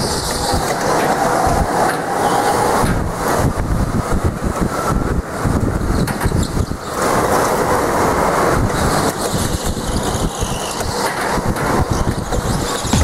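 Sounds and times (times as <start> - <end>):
wind rushing on microphone: 0.0 - 13.0.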